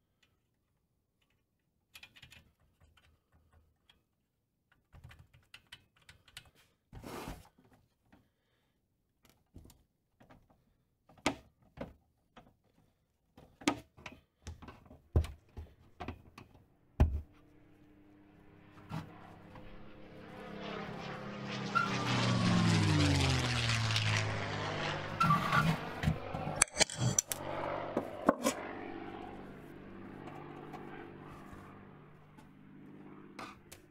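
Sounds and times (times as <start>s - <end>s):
whirring noise: 17.7s - 32.5s
screwdriver clicking on metal: 26.6s - 27.4s.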